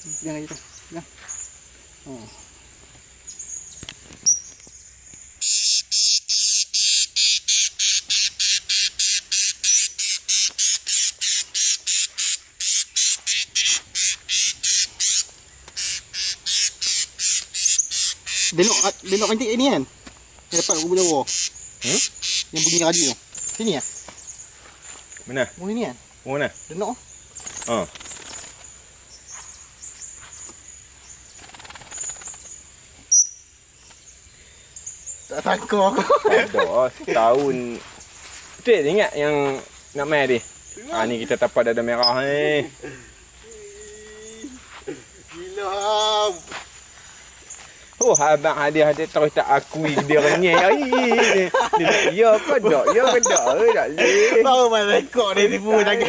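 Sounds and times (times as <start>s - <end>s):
high-pitched insect drone: 0.0s - 56.0s
parrot chirping: 3.3s - 19.4s, 20.5s - 23.2s, 33.1s - 33.4s
animal calling with rasping pulses: 5.4s - 19.4s, 20.5s - 23.2s.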